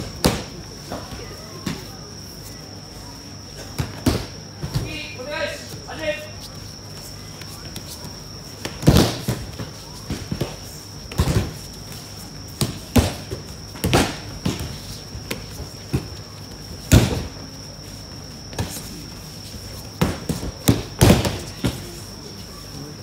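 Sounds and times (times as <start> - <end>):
bodies landing on mats: 3.6 - 5.0, 7.4 - 17.4, 18.0 - 22.0.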